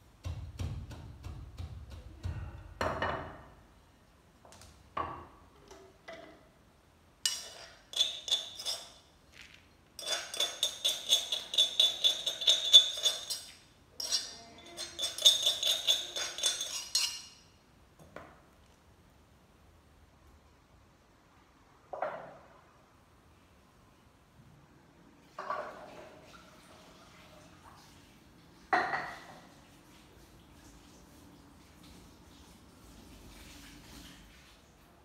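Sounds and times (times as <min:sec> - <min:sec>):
spoon scraping metal bowl: 0:07.2 - 0:09.1, 0:10.0 - 0:17.5.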